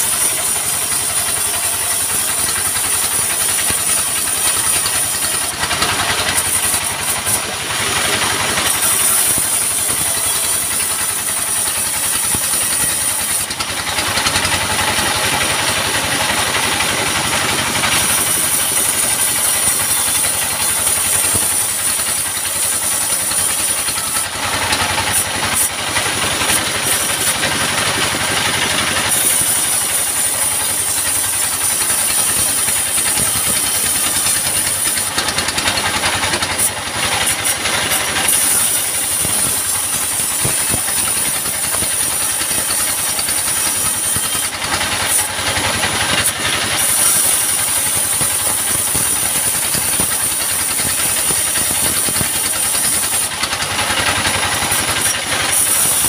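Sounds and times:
diesel engine droning: 0.0s - 56.0s
saw ripping through log: 0.0s - 56.0s.

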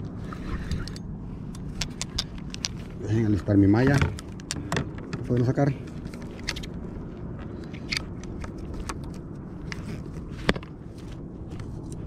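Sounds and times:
fishing gear clicks and rustles: 0.0s - 12.0s
steady low rumble: 0.0s - 12.0s.

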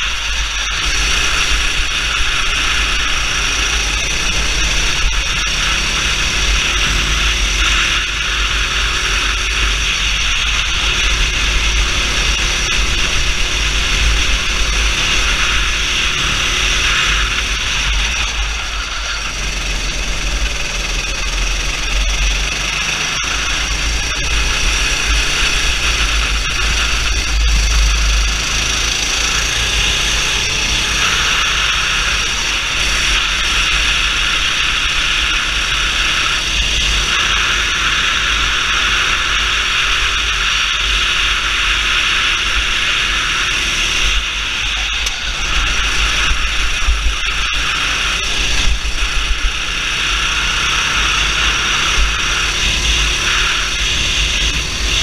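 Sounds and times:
kart engine revving: 0.0s - 55.0s
wind rush on microphone: 38.1s - 55.0s.

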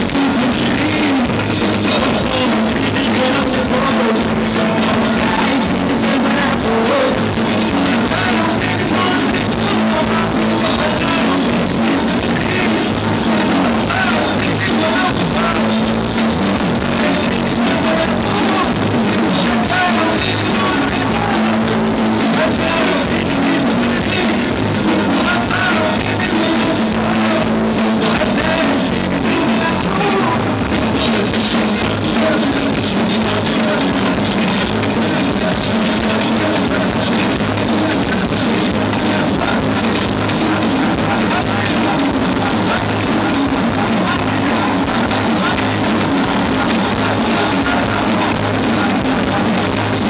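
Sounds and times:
drum kit: 0.0s - 50.0s
electric guitars: 0.0s - 50.0s
man singing lead vocals: 0.0s - 50.0s.

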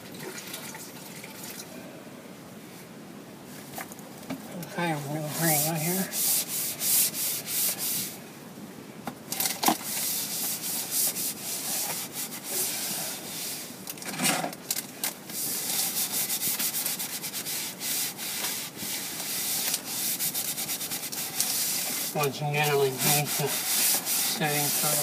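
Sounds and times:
damp sponge rubbing on drywall: 4.8s - 8.2s, 9.8s - 13.7s, 15.4s - 25.0s.

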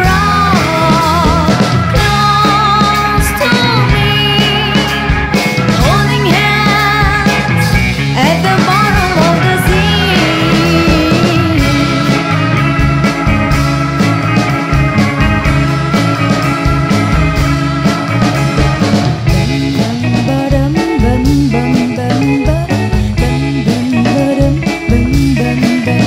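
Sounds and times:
electric guitar riff: 0.0s - 26.0s
rock band playing: 0.0s - 26.0s.

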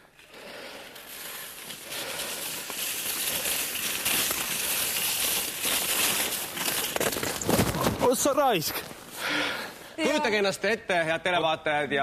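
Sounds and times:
sliding over snow: 0.6s - 9.0s.

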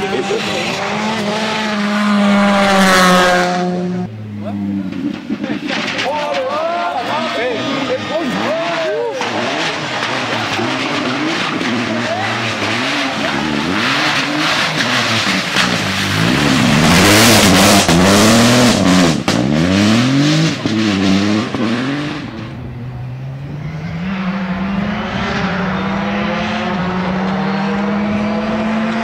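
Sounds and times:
rally car engines revving: 0.0s - 29.0s
gravel thrown by tyres: 9.7s - 17.2s.

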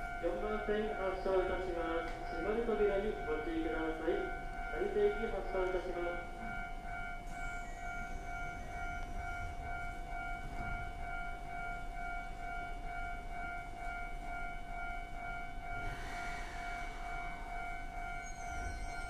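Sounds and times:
steady electronic whining tone: 4.6s - 19.0s
high electronic beeping: 15.9s - 19.0s.

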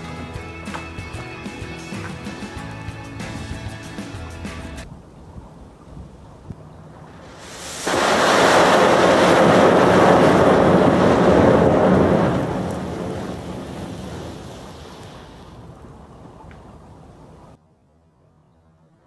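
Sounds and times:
rushing hiss of flame jet: 7.1s - 11.3s.

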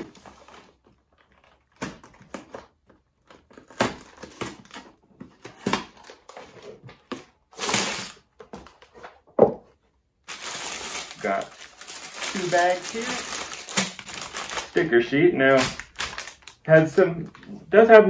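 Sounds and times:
cardboard box crinkling and rustling: 10.3s - 14.8s, 15.5s - 16.6s.

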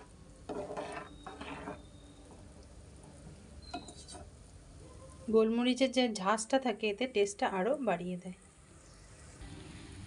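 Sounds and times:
spatula scraping pan: 0.0s - 2.4s, 3.8s - 4.3s.

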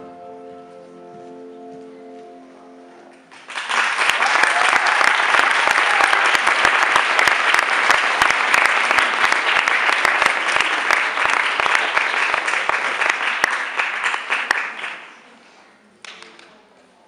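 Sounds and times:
audience applauding: 3.1s - 15.2s.

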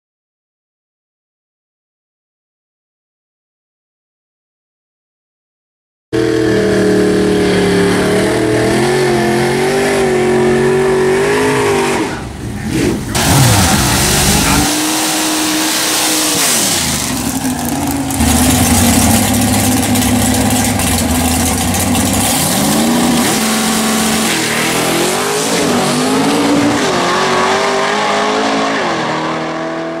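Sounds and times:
car engine revving loudly: 6.2s - 30.0s.

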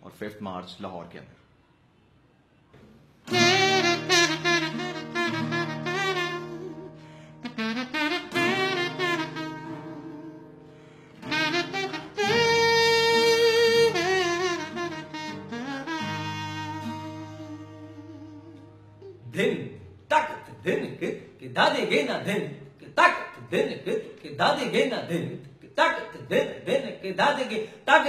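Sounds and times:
acoustic guitar: 2.7s - 28.0s
buzzy reed-like wind instrument melody: 3.3s - 10.6s, 11.2s - 19.2s.

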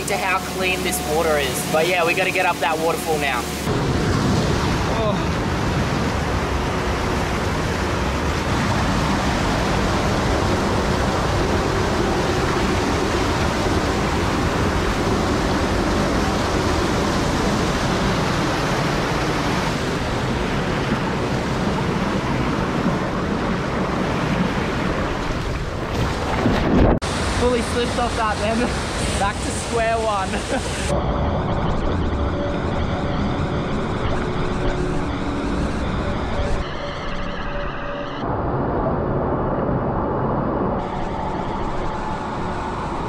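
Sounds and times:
waterfall rushing over rocks: 0.0s - 25.2s, 27.0s - 30.9s.

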